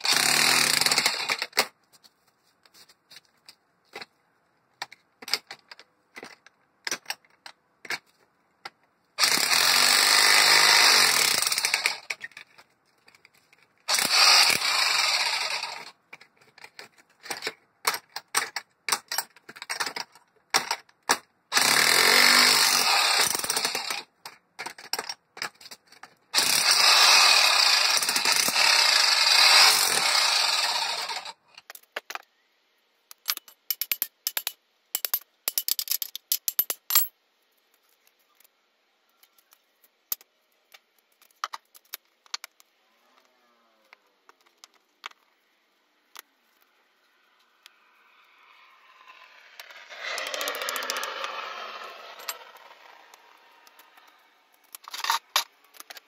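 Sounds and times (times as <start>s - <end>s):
jackhammer pounding concrete: 0.0s - 1.4s, 9.2s - 12.0s, 13.9s - 15.9s, 21.5s - 24.0s, 26.4s - 31.3s.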